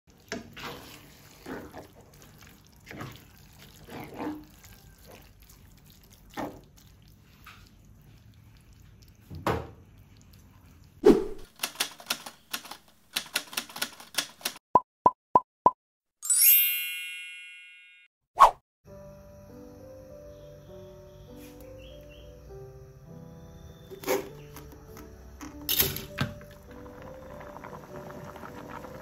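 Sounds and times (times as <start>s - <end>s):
sauce squelching in a frying pan: 0.1s - 11.0s
quick run of sharp clicks: 11.4s - 14.6s.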